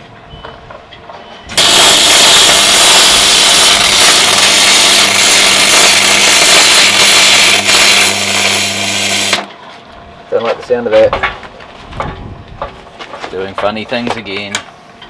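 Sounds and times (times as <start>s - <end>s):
welder hissing crackle: 1.5s - 9.5s.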